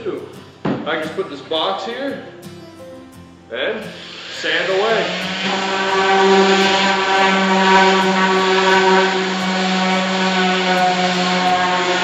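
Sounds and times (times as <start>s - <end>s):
sanding pad hissing on wood: 3.9s - 12.0s
orbital sander motor hum: 4.2s - 12.0s.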